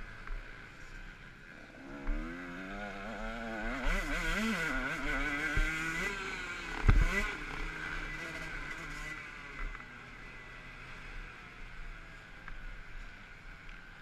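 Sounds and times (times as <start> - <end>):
motocross bike engine revving: 1.6 - 9.8.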